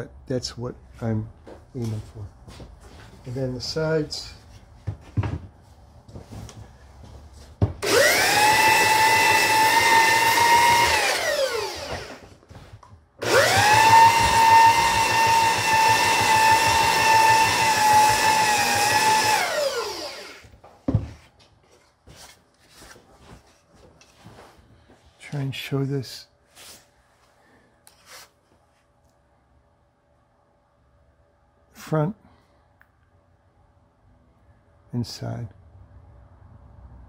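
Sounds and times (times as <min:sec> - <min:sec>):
belt sander whine: 0:07.8 - 0:12.3, 0:13.2 - 0:20.6.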